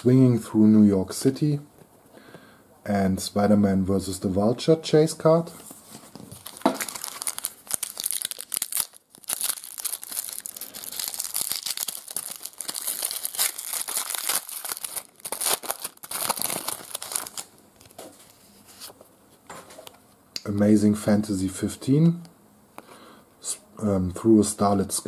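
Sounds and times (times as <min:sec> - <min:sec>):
foil wrapper crinkling and tearing: 0:06.2 - 0:18.0.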